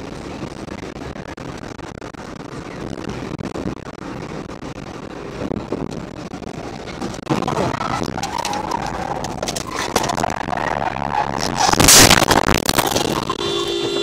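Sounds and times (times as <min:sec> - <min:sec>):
road and wind noise in car: 0:00.0 - 0:14.0
sudden loud noise: 0:05.8 - 0:14.0.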